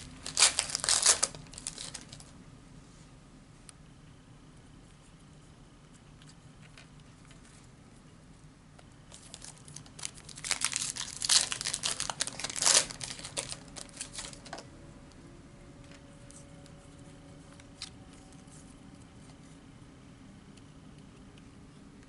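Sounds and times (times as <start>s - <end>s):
plastic wrapper crinkling and tearing: 0.0s - 2.3s, 9.1s - 14.6s.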